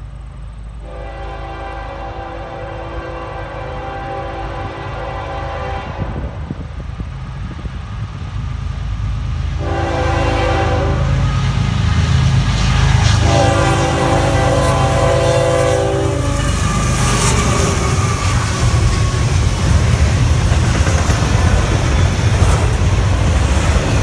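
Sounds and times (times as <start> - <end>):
locomotive horn blasts: 0.8 - 6.5, 9.6 - 11.6, 13.1 - 19.4
wheels clattering over rails: 16.4 - 24.0.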